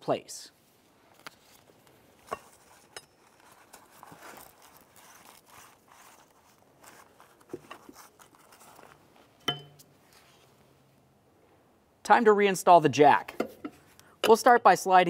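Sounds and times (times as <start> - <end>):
bag rustling and crinkling: 1.1 - 9.4.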